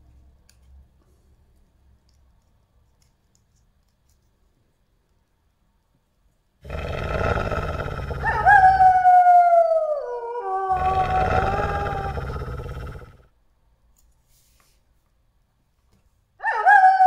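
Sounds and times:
wolf howling: 6.7s - 13.2s.

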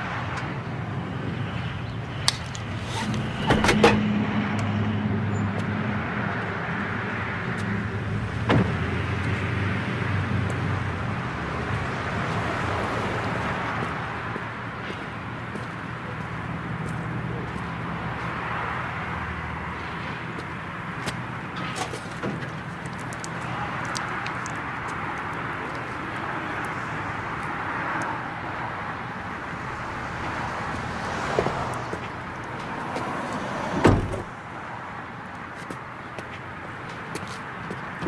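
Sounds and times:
traffic and passing cars: 0.0s - 38.0s
dull thump: 33.8s - 34.3s.

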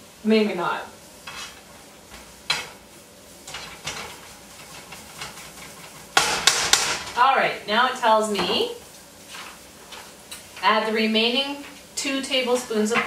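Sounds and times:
faint sizzle: 0.0s - 13.0s
utensil scraping frying pan: 0.9s - 7.2s, 8.2s - 13.0s
utensil knocking on pan: 3.5s - 7.2s.

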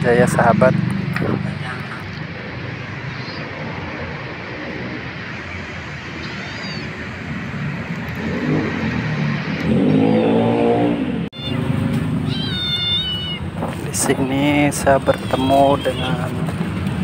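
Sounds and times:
street traffic noise: 0.0s - 17.0s
vehicle engine revving past: 7.6s - 12.3s.

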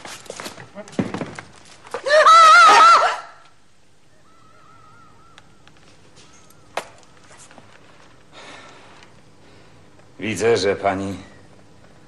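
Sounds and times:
woman screaming: 2.0s - 3.4s.

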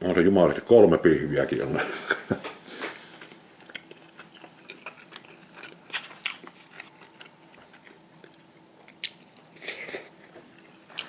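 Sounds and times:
person chewing food: 2.7s - 11.0s.

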